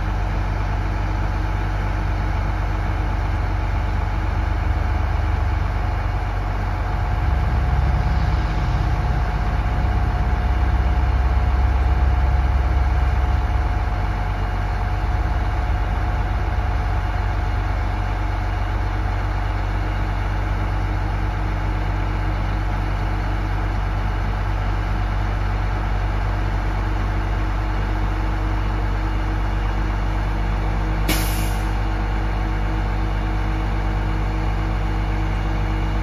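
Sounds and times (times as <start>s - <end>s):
diesel engine idling: 0.0s - 36.0s
short hiss: 31.1s - 31.7s.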